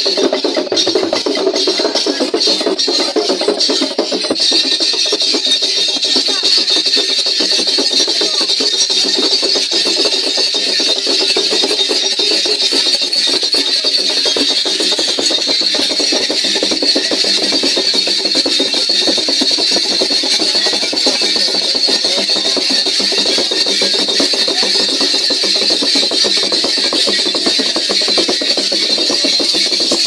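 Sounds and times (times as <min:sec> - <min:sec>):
fast drumming with sticks: 0:00.0 - 0:30.0.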